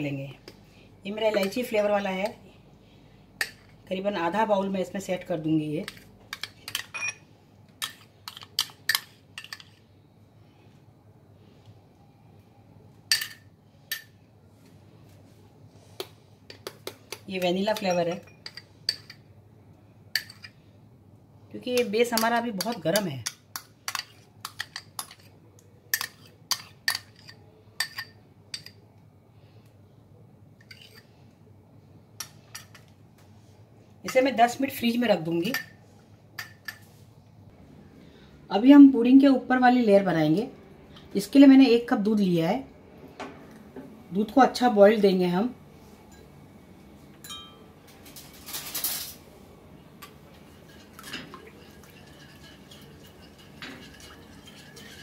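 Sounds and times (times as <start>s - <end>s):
spoon clinking on glass cups: 17.4s - 19.2s, 47.2s - 47.7s, 50.6s - 55.0s.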